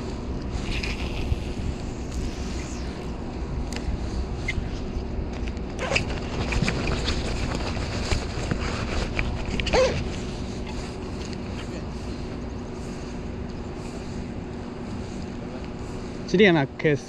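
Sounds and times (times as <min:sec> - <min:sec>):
wind rumble on microphone: 0:00.0 - 0:11.5.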